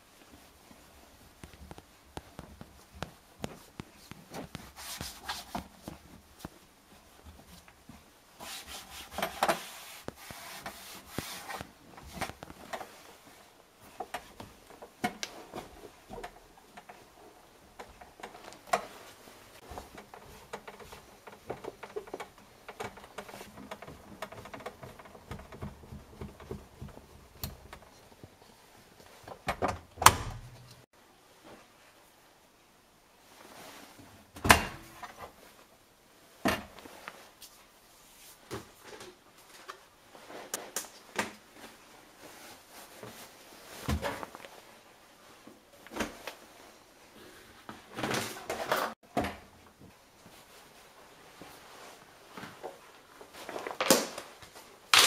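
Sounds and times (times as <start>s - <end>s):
rubbing and scraping: 3.7s - 6.1s, 8.4s - 13.1s.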